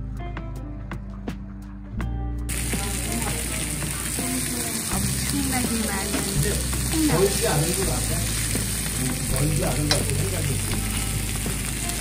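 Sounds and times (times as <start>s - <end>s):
pork sizzling on a griddle: 2.5s - 12.0s.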